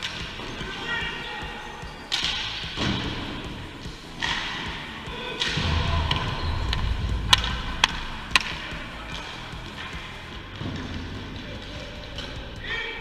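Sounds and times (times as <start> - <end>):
stick clacking ball: 1.4 - 13.0
low rumble of movement: 2.8 - 12.6.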